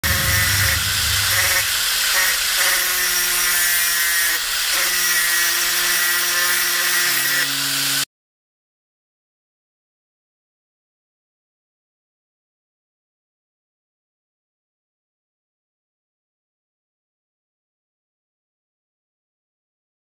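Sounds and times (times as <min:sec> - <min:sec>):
angle grinder grinding: 0:00.0 - 0:08.1.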